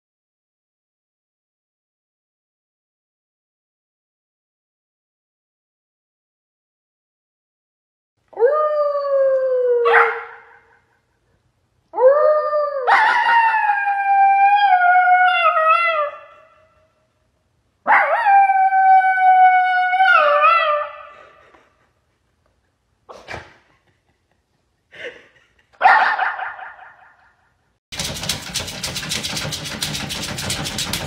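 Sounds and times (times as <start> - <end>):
dog howling into toy microphone: 8.4 - 10.5, 12.0 - 16.6, 17.9 - 21.1.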